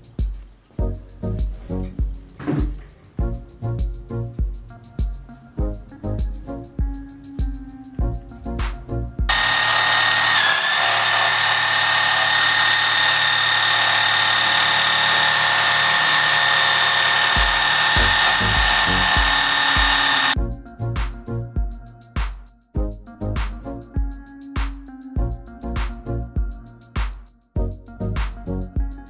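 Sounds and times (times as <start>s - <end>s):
scroll saw motor whine: 9.3s - 20.4s.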